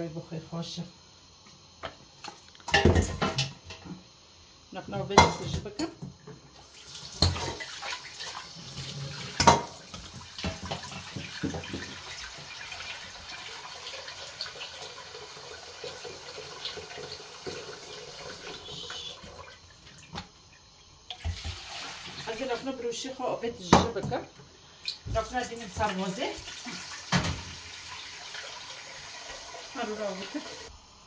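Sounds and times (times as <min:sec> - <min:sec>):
tap water running into a pot: 0:05.0 - 0:22.8, 0:23.7 - 0:31.0.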